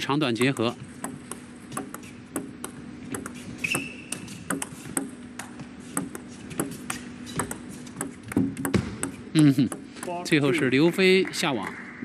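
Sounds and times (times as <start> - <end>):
steady low hum: 0.0 - 12.0
table tennis ball clicking: 0.4 - 10.4
high squeak: 3.4 - 4.5.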